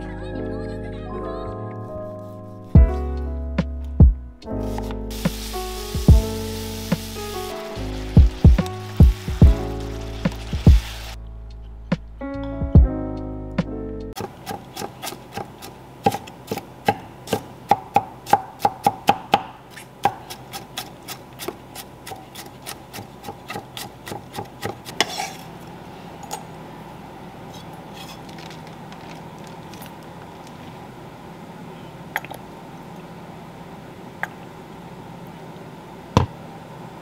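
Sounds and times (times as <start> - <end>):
knife chopping on wooden board: 14.2 - 25.4
knife scrape: 19.7 - 25.5, 27.5 - 28.5.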